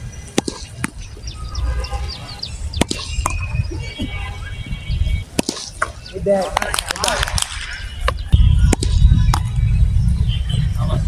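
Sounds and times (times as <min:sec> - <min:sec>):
birds chirping: 0:00.0 - 0:11.0
wind rumbling on microphone: 0:00.0 - 0:11.0
cricket bat hitting ball: 0:00.3 - 0:01.1, 0:02.8 - 0:03.6, 0:05.4 - 0:09.5.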